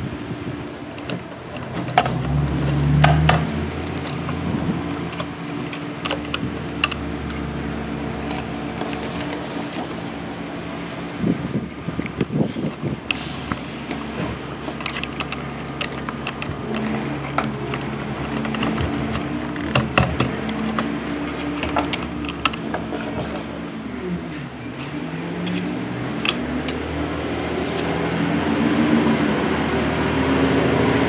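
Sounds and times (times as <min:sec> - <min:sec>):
toy truck clicks and rattles: 0:00.8 - 0:07.5, 0:08.1 - 0:09.9, 0:12.0 - 0:23.5
paper rustling: 0:00.9 - 0:11.0, 0:11.8 - 0:29.0.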